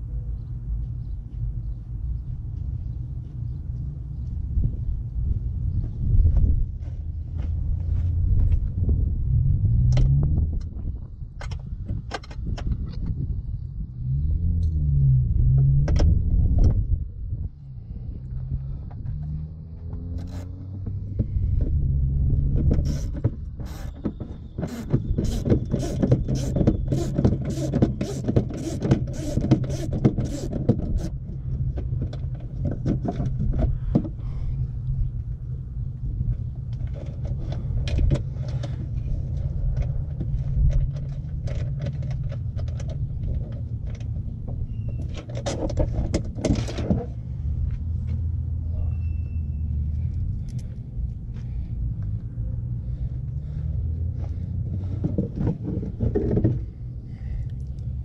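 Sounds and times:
steady low rumble: 0:00.0 - 0:45.0, 0:45.8 - 0:58.0
hand ratchet clicking: 0:24.6 - 0:31.1.

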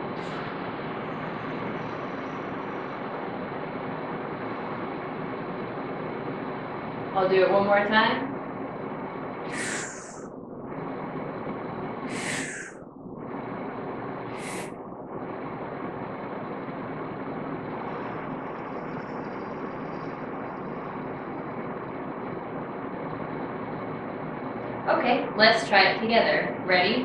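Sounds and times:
steady background hiss: 0:00.0 - 0:27.0
sharp inhalations: 0:09.5 - 0:10.3, 0:12.1 - 0:12.8, 0:14.3 - 0:14.8
soft exhale through lips: 0:09.5 - 0:10.3, 0:12.1 - 0:12.8, 0:14.4 - 0:14.7.

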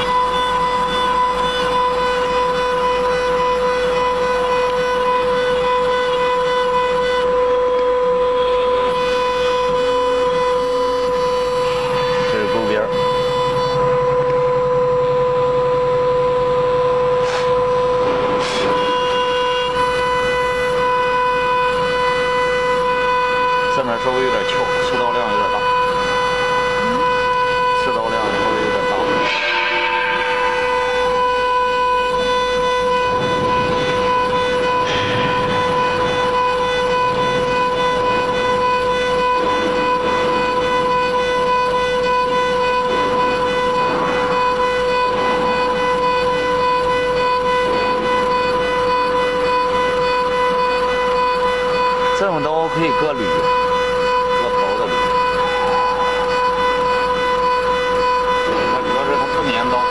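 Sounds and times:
bit cutting metal: 0:00.0 - 0:59.9
cnc router spindle whine: 0:00.0 - 0:59.9.

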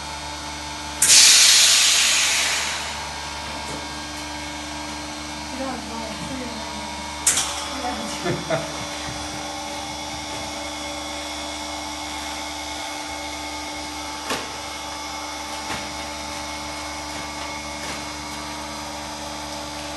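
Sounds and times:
vacuum pump humming: 0:00.0 - 0:19.9.

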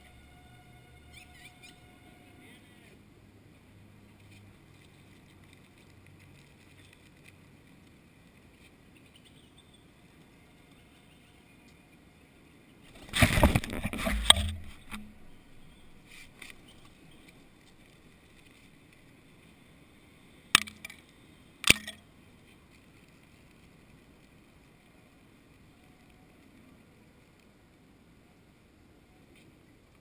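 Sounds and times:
low steady background: 0:00.0 - 0:30.0
pigeon wings flapping: 0:12.9 - 0:15.0.

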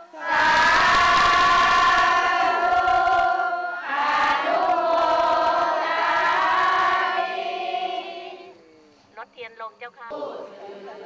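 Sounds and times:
crowd chanting held note: 0:00.0 - 0:08.8, 0:10.1 - 0:11.0.

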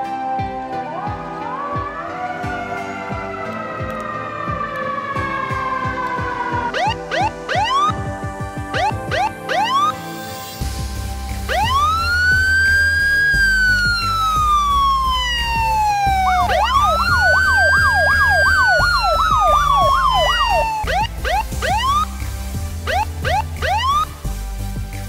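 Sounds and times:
background music: 0:00.0 - 0:25.0
electronic police siren: 0:06.7 - 0:08.1, 0:08.7 - 0:10.0, 0:11.5 - 0:22.1, 0:22.9 - 0:24.1.

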